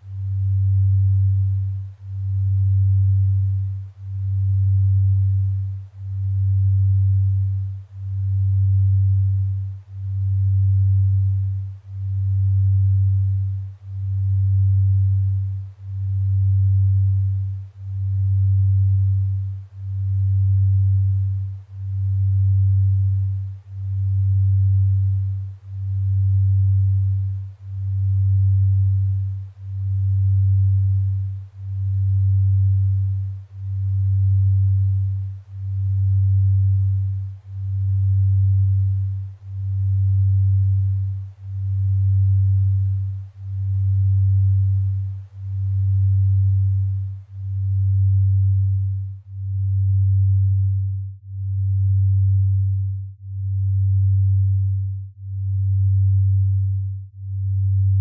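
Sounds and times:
deep pulsing sine tone: 0.0s - 58.0s.

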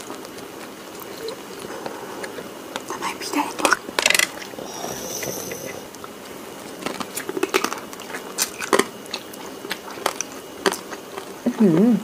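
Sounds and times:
wet chewing sounds: 0.0s - 12.0s
crackles and crunches: 5.9s - 11.7s.

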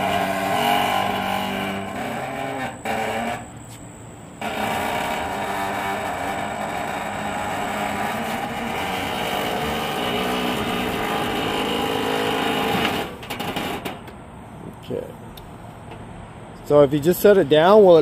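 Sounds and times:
forklift motor and hydraulic drone: 0.0s - 3.8s, 4.4s - 13.8s.

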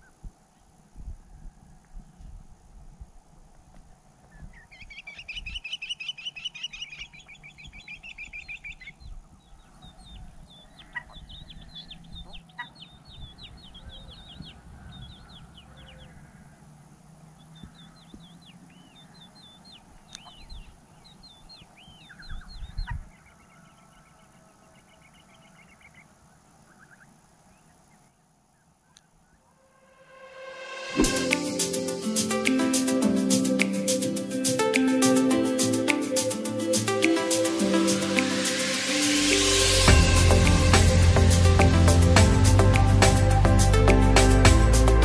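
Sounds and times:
birds chattering: 4.3s - 28.1s
short descending bird calls: 4.6s - 9.0s.

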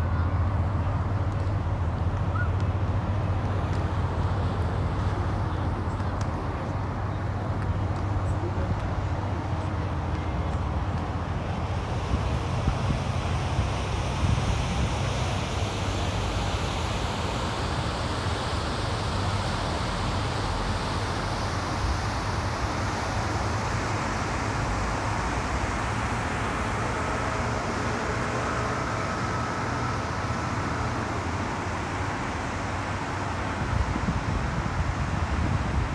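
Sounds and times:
road traffic drone: 0.0s - 35.9s
wind buffeting microphone: 10.7s - 16.4s, 32.5s - 35.9s.

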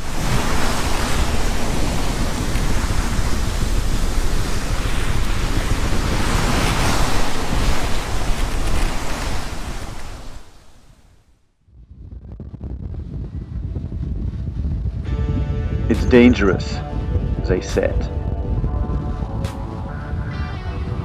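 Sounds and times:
seawater rushing along hull: 0.0s - 10.7s
wind buffeting microphone: 0.0s - 11.1s, 11.7s - 21.0s.

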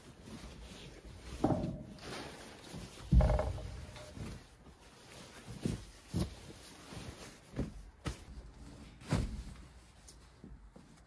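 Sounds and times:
sleeping bag rustling: 0.0s - 11.0s
bumps on steel bin floor: 3.1s - 4.1s.

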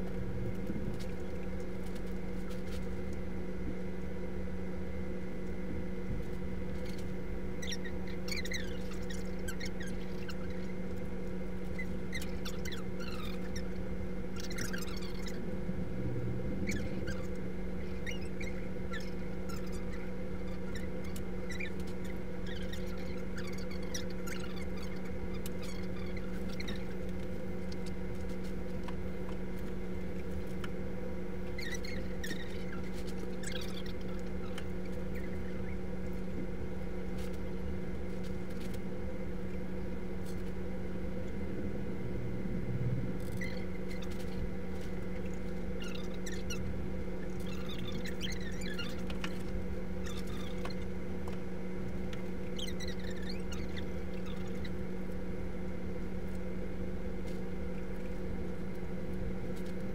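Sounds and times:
low electrical hum: 0.0s - 59.9s
painting tools squeaking and scratching: 31.5s - 35.8s.

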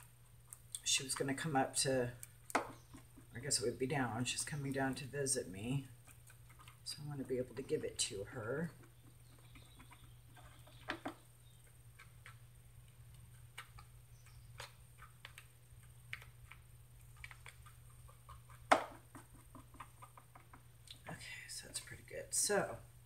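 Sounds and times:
stir stick scraping plastic cup: 0.0s - 12.5s.

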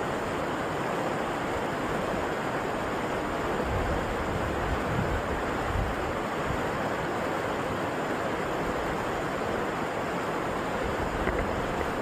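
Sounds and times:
water rushing over rocks: 0.0s - 12.0s
wind rumble on microphone: 3.6s - 6.7s.

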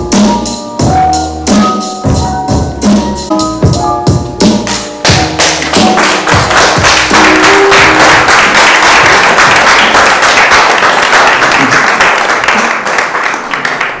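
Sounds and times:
music: 0.0s - 10.5s
audience applauding: 5.1s - 14.0s.

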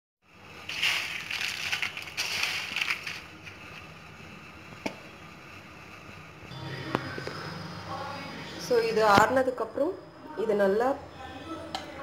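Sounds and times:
lentils rattling in steel bowl: 0.6s - 3.9s.

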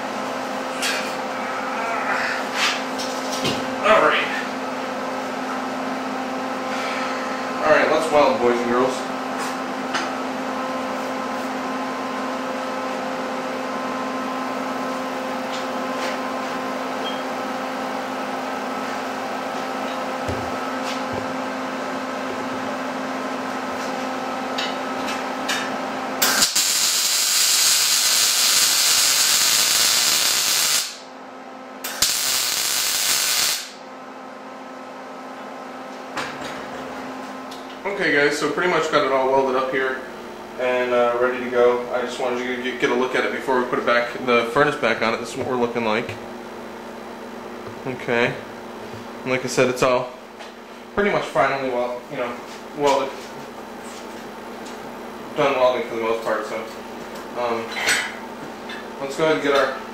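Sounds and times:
welder humming: 25.5s - 31.1s, 31.8s - 33.9s
welding arc hissing and crackling: 26.2s - 31.1s, 31.8s - 33.8s.

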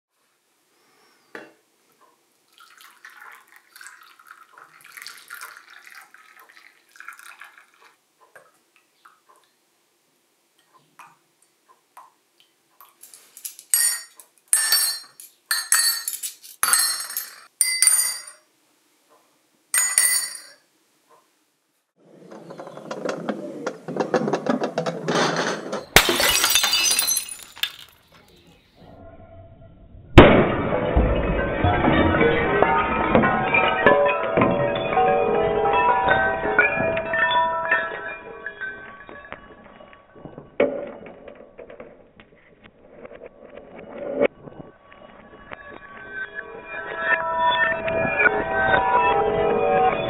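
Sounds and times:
porcelain cups clinking: 12.9s - 18.4s, 19.8s - 20.6s, 25.3s - 27.9s
porcelain cups smashing on paving: 13.0s - 18.4s, 19.8s - 20.6s, 25.3s - 28.2s.

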